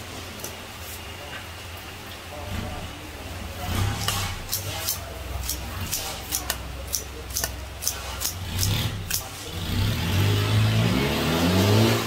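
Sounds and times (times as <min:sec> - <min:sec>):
vehicle engine revving: 0:03.5 - 0:04.8, 0:07.8 - 0:12.0
scissors snipping: 0:04.0 - 0:09.3.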